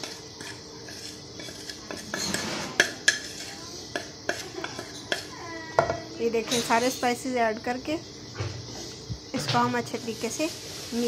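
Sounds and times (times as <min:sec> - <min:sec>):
metal spoon scraping ceramic plate: 0:00.0 - 0:05.3.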